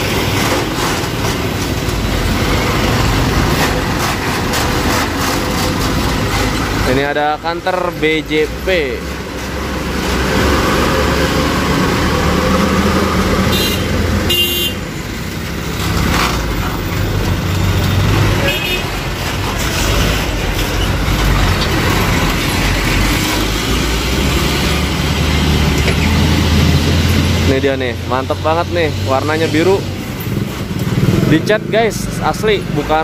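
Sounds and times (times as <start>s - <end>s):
heavy trucks passing: 0.0s - 33.0s
short horn toots: 13.5s - 14.8s.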